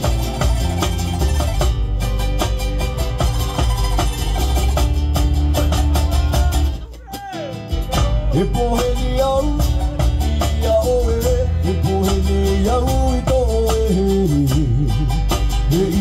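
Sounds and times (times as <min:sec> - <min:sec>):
live band playing: 0:00.0 - 0:16.0
person singing: 0:06.0 - 0:16.0.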